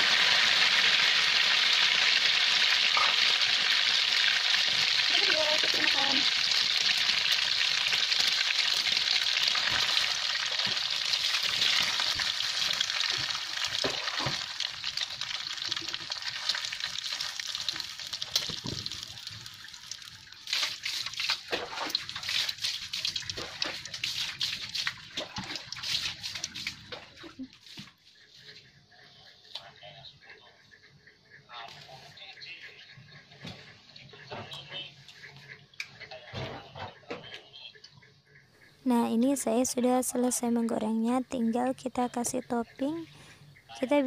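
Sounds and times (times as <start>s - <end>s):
oil crackling and popping: 0.0s - 27.5s
egg batter sizzling in oil: 0.0s - 27.9s.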